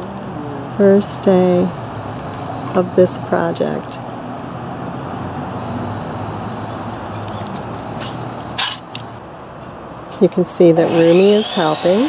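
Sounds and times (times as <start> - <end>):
low mechanical hum: 10.8 - 12.0.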